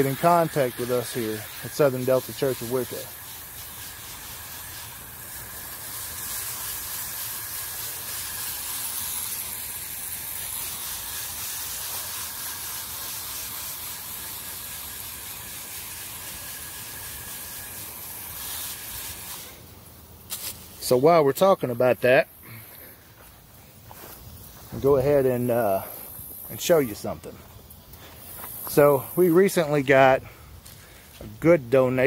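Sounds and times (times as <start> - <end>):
hose spray nozzle hissing: 0.0 - 22.9, 24.1 - 31.5.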